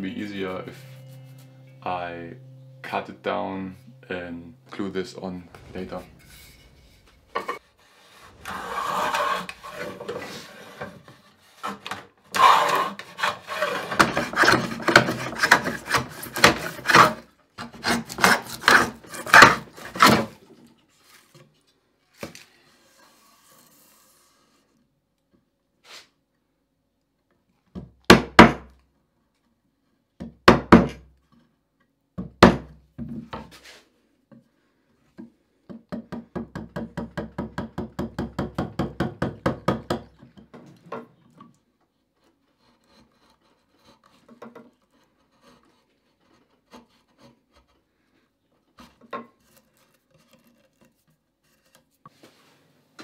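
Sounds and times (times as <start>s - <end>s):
chisel paring scrapes: 5.5s - 20.4s, 42.1s - 52.0s
wood chisel chopping: 13.9s - 20.3s.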